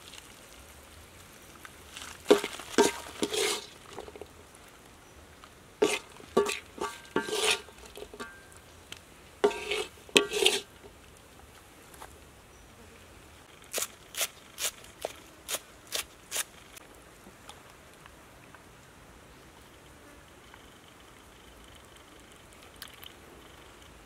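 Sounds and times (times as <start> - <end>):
metal spoon scraping a wok: 2.3 - 4.2, 5.8 - 8.5, 9.4 - 10.7.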